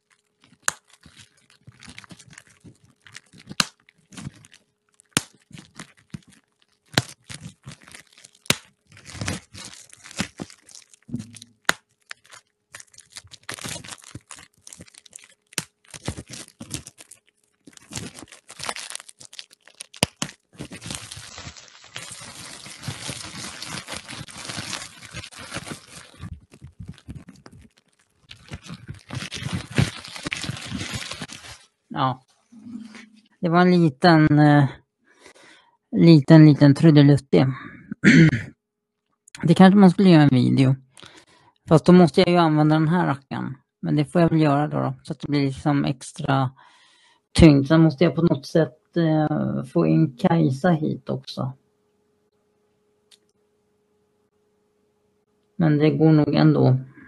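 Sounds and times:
bubble wrap crinkling: 0.0 - 33.3.

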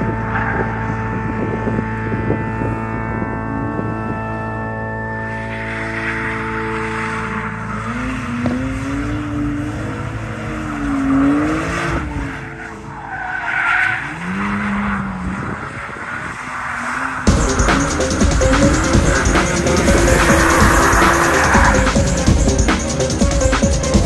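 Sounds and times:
car engine revving: 0.0 - 24.0
tyres squealing: 12.3 - 24.0
loud electronic music: 17.2 - 24.0.

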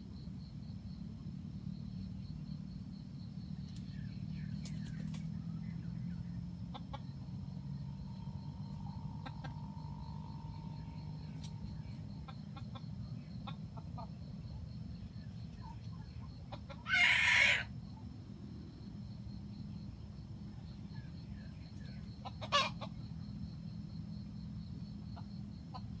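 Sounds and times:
rooster crowing: 16.8 - 17.7.

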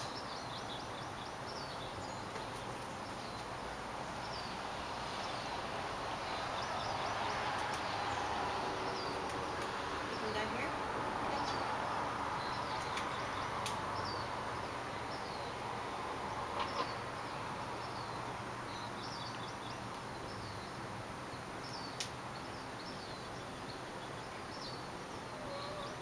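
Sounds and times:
small birds chirping: 0.0 - 26.0
steady background hiss: 0.0 - 26.0
faint sharp clicks: 7.6 - 7.9, 9.1 - 9.8, 12.8 - 13.8, 22.0 - 22.2.

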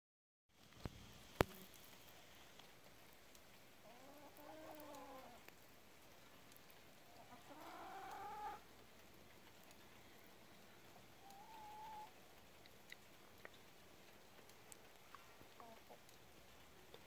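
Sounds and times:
faint drawn-out animal calls: 7.1 - 8.7, 11.1 - 12.2.

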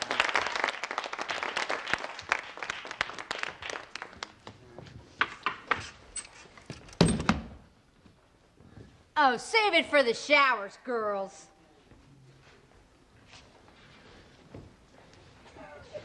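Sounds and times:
people clapping: 0.0 - 5.7.

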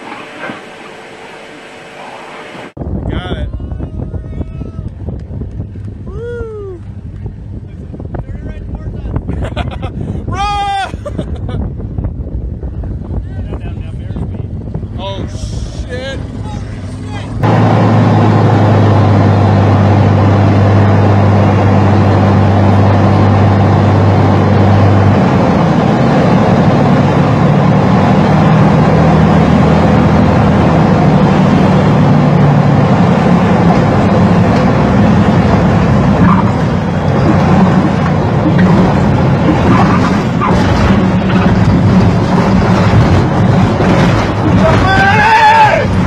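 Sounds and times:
light aircraft engine droning: 0.0 - 2.8.

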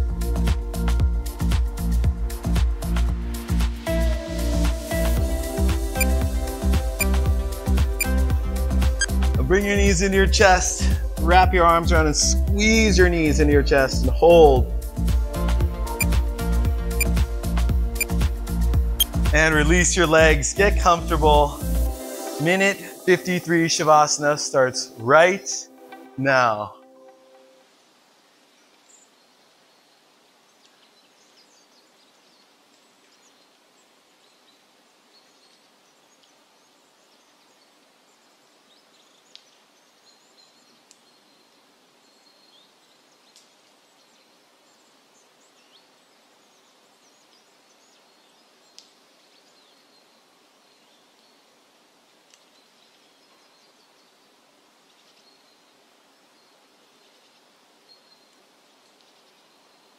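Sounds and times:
small birds chirping: 5.0 - 9.8, 15.9 - 16.2, 17.0 - 17.2, 17.9 - 21.8, 28.3 - 59.9.

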